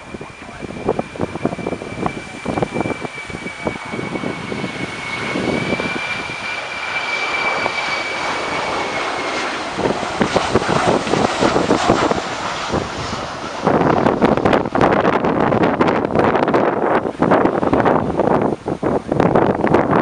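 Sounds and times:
jet engines whining: 0.0 - 20.0
jet passing low overhead: 0.0 - 20.0.

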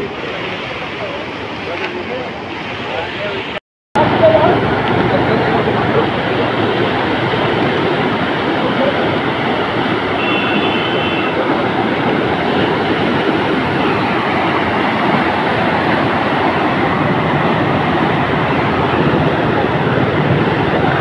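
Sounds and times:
floodwater rushing down a channel: 0.0 - 21.0
brief high tone: 10.2 - 11.4.

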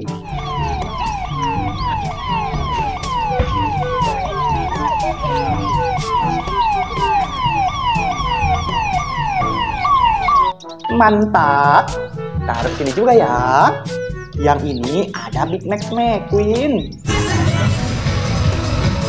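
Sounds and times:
low rumble: 0.0 - 10.5
toy electronic siren wailing: 0.0 - 11.0.

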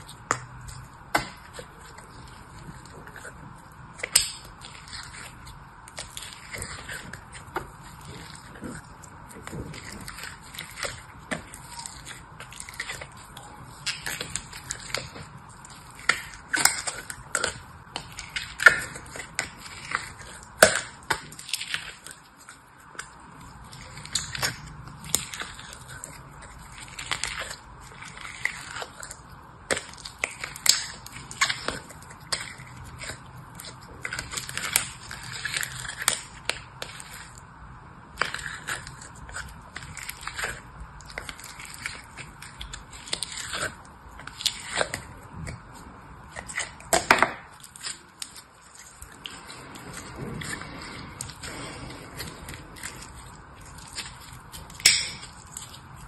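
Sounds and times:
crumbly mass crunching: 0.0 - 56.0.

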